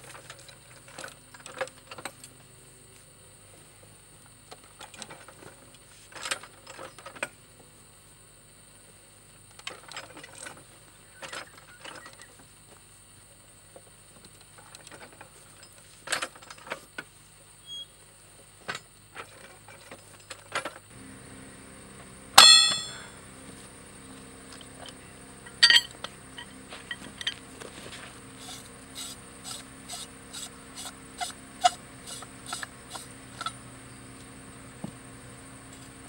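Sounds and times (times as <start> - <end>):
loud ringing clang: 22.4 - 23.2, 25.5 - 25.9
steel tools clanking: 22.4 - 23.2, 24.8 - 27.5, 28.3 - 33.6.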